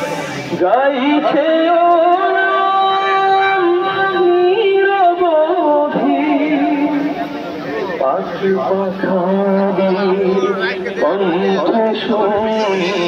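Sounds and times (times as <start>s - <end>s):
person singing long sliding notes: 11.0s - 13.0s.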